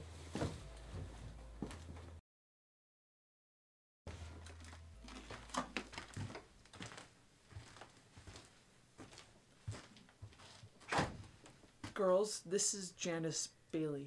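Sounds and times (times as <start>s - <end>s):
footsteps on wooden floor: 0.3s - 2.2s, 4.1s - 12.0s
wooden door shutting: 10.8s - 11.3s.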